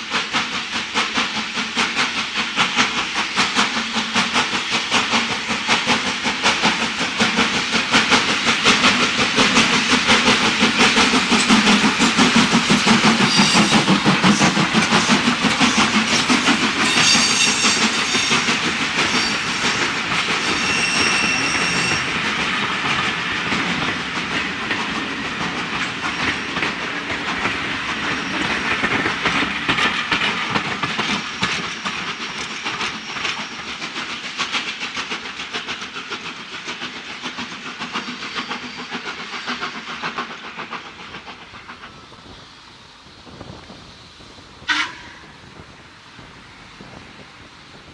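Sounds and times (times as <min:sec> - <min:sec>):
steam locomotive exhaust beats: 0:00.0 - 0:47.9
high squeals: 0:13.2 - 0:14.5, 0:20.4 - 0:22.2.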